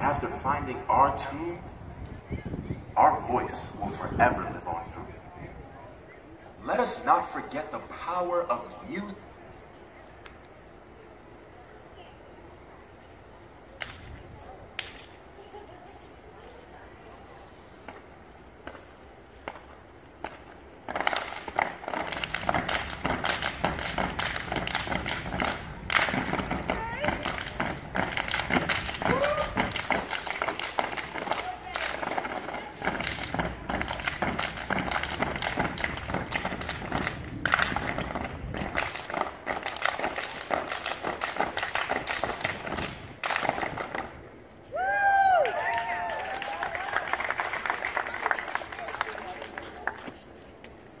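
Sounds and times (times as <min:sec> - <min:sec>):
hands clapping in unison: 0:14.8 - 0:15.1, 0:20.2 - 0:44.0, 0:45.4 - 0:50.2
stomping feet: 0:17.8 - 0:44.2
people shouting calls: 0:25.6 - 0:27.7, 0:28.5 - 0:30.5.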